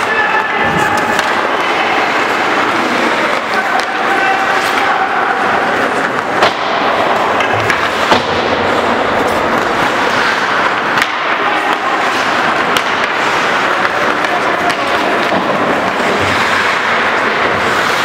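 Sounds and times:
skates scraping on ice: 0:00.0 - 0:18.0
stick and puck knocks: 0:06.0 - 0:08.6, 0:10.7 - 0:16.9.

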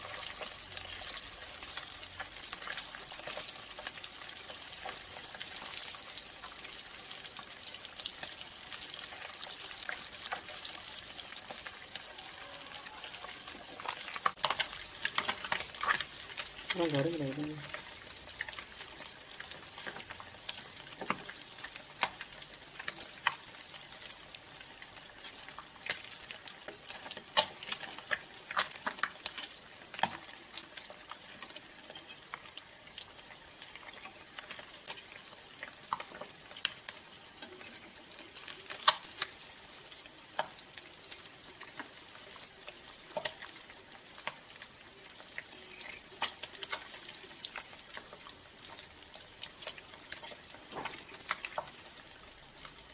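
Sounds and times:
fish frying in hot oil: 0:00.0 - 0:52.9
oil crackling pops: 0:38.6 - 0:39.3.

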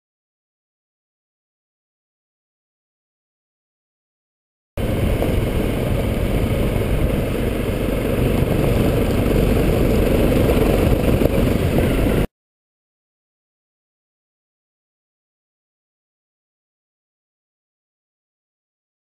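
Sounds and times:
motorcycle engine rumbling: 0:04.8 - 0:12.3.

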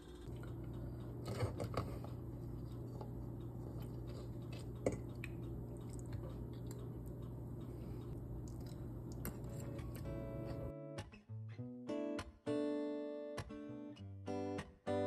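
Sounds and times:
chewing: 0:00.0 - 0:07.4, 0:08.0 - 0:10.2
steady low hum: 0:00.0 - 0:10.8.

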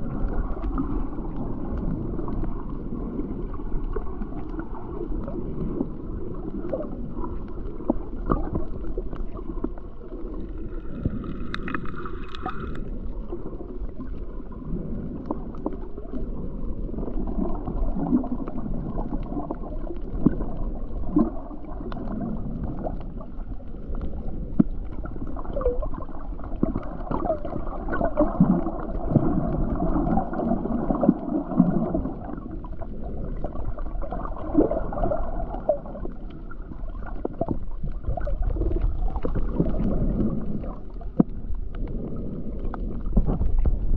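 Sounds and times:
underwater gurgling: 0:00.0 - 0:43.9
small clicks and pops: 0:06.4 - 0:13.0.

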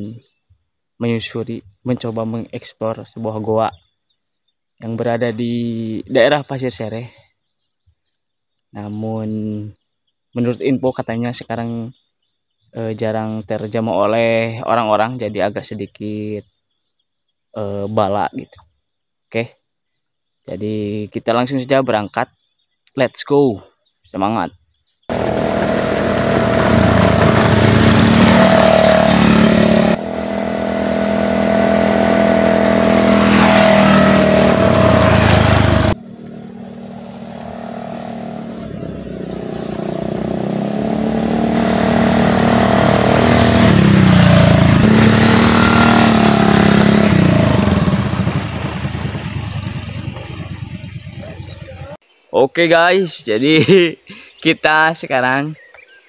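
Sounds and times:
motor scooters passing: 0:25.1 - 0:52.0.

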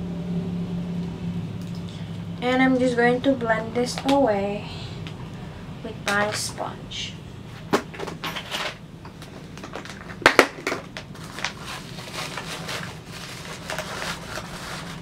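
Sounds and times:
small items clicking and rustling: 0:07.9 - 0:15.0.

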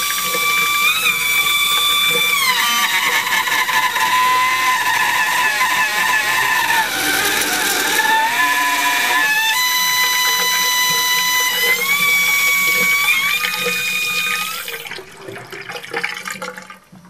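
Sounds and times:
trickle of water: 0:00.0 - 0:04.0
tap whistling: 0:00.0 - 0:14.8
running water: 0:00.0 - 0:17.0.

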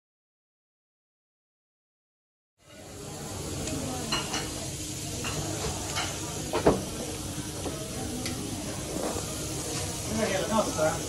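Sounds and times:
steady hiss: 0:02.7 - 0:11.0.

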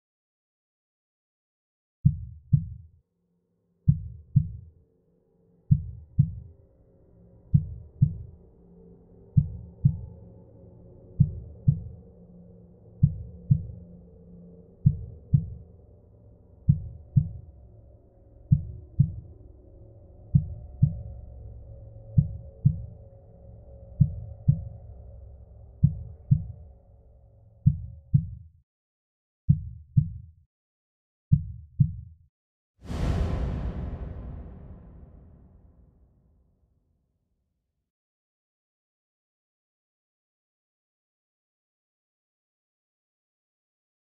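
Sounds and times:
deep heartbeat-like thumps: 0:02.0 - 0:02.9, 0:03.9 - 0:04.7, 0:05.7 - 0:06.5, 0:07.5 - 0:08.3, 0:09.4 - 0:10.1, 0:11.2 - 0:12.0, 0:13.0 - 0:13.8, 0:14.8 - 0:15.6, 0:16.7 - 0:17.4, 0:18.5 - 0:19.3, 0:20.2 - 0:21.1, 0:22.2 - 0:22.9, 0:24.0 - 0:24.7, 0:25.8 - 0:26.6, 0:27.6 - 0:28.4, 0:29.5 - 0:30.3, 0:31.3 - 0:32.1, 0:32.9 - 0:35.8
low drone: 0:32.9 - 0:36.0.

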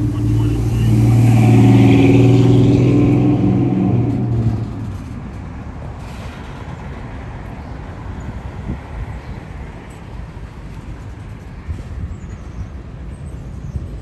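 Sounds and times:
diesel locomotive engine drone: 0:00.0 - 0:14.0
freight cars rolling on rails: 0:00.0 - 0:14.0.

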